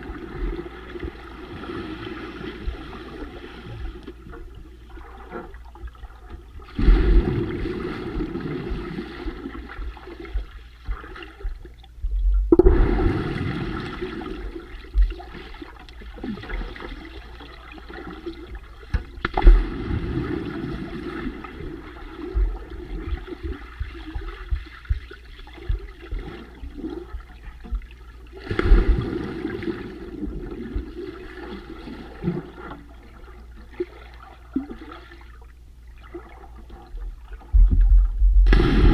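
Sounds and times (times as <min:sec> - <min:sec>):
underwater splashing and bubbling: 0:00.0 - 0:38.9
light underwater knocks: 0:18.9 - 0:19.6, 0:22.4 - 0:28.0, 0:36.9 - 0:38.7.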